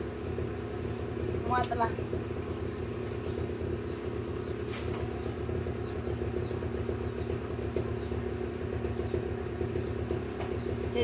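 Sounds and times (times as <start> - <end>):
motor humming: 0.0 - 11.0
light tap: 10.4 - 10.6.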